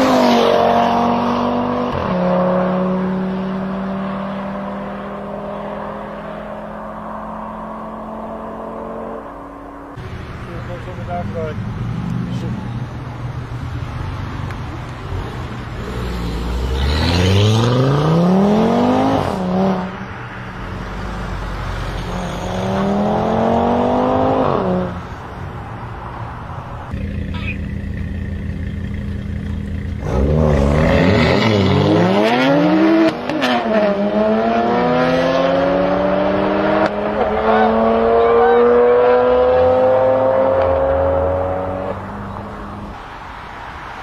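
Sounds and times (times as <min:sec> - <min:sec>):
car engine accelerating hard: 0:15.8 - 0:19.9, 0:27.0 - 0:42.9.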